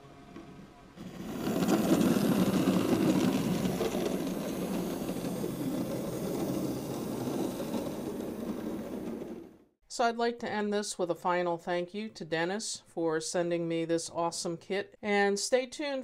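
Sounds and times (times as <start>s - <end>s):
model trolley motor whir: 1.0s - 9.7s
wheel rumble on track: 1.0s - 9.7s.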